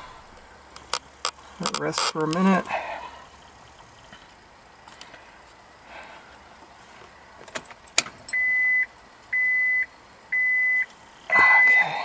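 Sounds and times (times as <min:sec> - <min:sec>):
dashboard warning chime beeping: 0:08.3 - 0:11.9.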